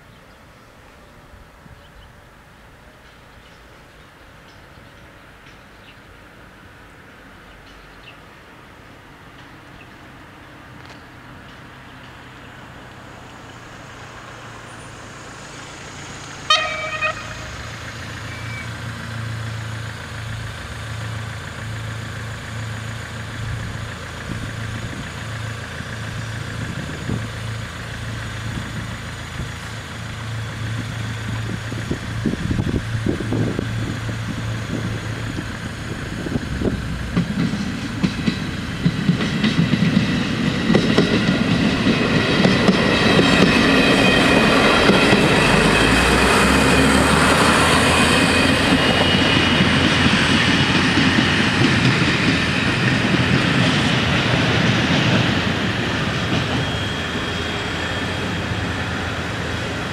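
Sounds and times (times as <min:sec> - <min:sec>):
diesel engine drone: 0:10.8 - 0:39.2, 0:40.3 - 0:59.9
train horn toot: 0:16.5 - 0:17.6
wheel and rail clatter: 0:17.6 - 0:59.9.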